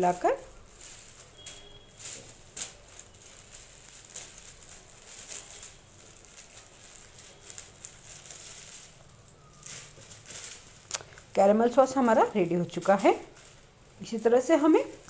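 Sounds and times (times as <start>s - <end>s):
wooden spatula scraping: 0.0s - 15.0s
pops and crackles: 0.3s - 12.0s.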